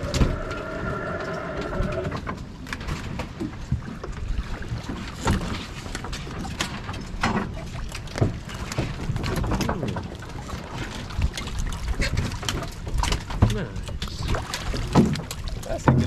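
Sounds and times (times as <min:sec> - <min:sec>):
boat rumble: 0:00.0 - 0:16.0
wind: 0:00.0 - 0:16.0
fish slapping on metal and deck: 0:04.9 - 0:16.0.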